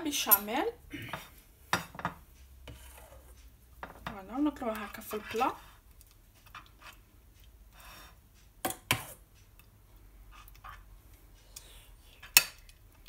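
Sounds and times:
faint spoon scraping: 2.6s - 5.8s, 6.4s - 7.0s.

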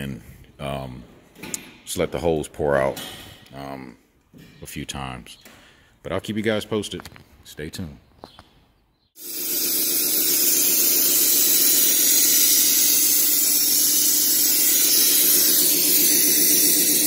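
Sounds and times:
pressurized hiss through hoses: 9.8s - 17.0s.

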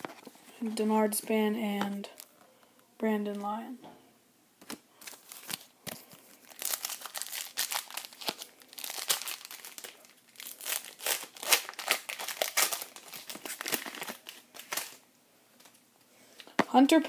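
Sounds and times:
foil wrapper crinkling and tearing: 5.0s - 15.0s.

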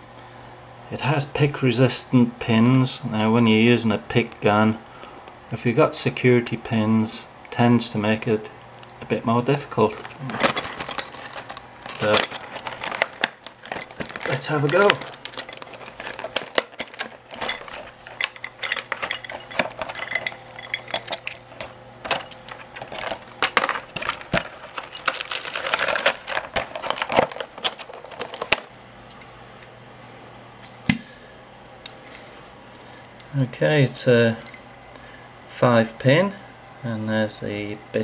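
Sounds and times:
plastic package crinkling: 10.1s - 28.8s
metal lock parts clinking: 10.3s - 29.3s, 31.7s - 35.0s.

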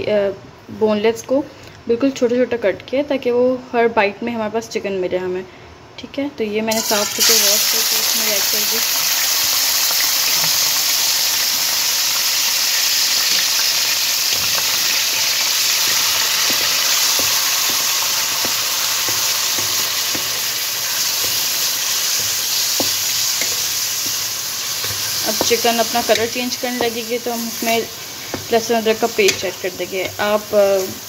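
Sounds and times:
chicken sizzling in hot oil: 6.7s - 31.0s.

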